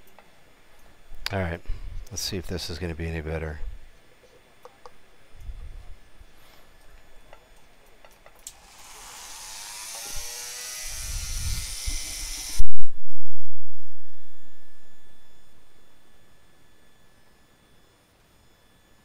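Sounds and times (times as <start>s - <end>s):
rotary tool whine: 8.4s - 12.8s
low tone: 12.6s - 17.4s.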